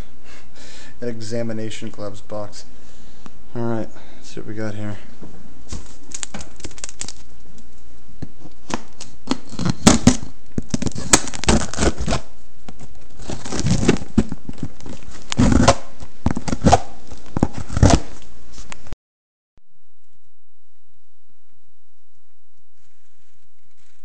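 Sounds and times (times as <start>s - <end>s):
tape and cardboard tearing: 5.7s - 7.3s, 8.6s - 18.3s.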